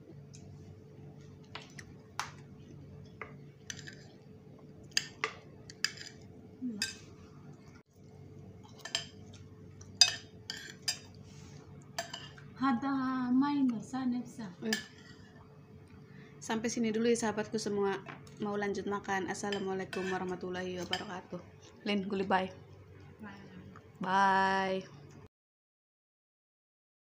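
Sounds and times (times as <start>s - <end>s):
spoon scraping ceramic plate: 19.5s - 20.3s.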